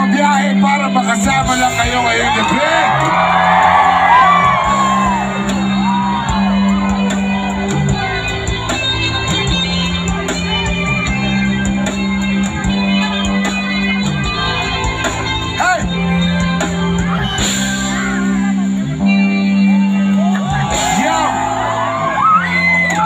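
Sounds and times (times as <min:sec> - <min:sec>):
live reggae band playing: 0:00.0 - 0:23.0
person shouting over music: 0:01.5 - 0:07.9, 0:20.1 - 0:23.0.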